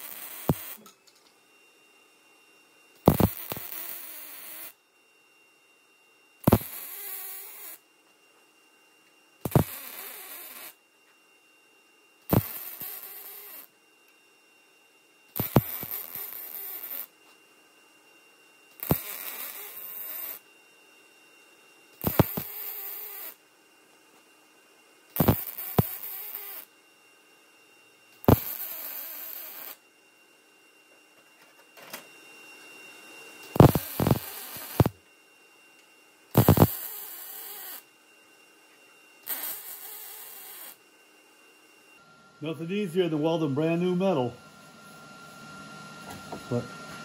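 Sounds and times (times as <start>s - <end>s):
welding arc crackling and buzzing: 0.0s - 1.0s, 3.0s - 4.8s, 6.4s - 7.8s, 9.4s - 10.8s, 12.3s - 13.7s, 15.3s - 17.2s, 18.8s - 20.4s, 22.0s - 23.4s, 25.1s - 26.7s, 28.2s - 29.8s, 33.5s - 35.0s, 36.3s - 37.8s, 39.2s - 40.8s.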